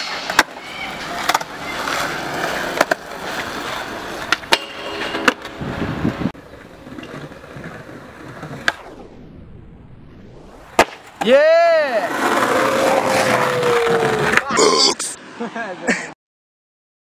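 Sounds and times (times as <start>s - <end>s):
skateboard scraping along metal bar: 0.0s - 8.8s
skateboard wheels rolling on concrete: 0.0s - 15.9s
skateboard popping and landing clacks: 0.2s - 5.6s, 6.8s - 8.8s.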